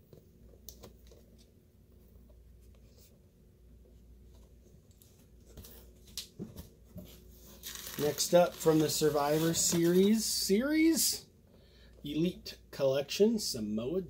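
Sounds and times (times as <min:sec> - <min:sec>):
rustling of a toy box: 0:05.2 - 0:10.4.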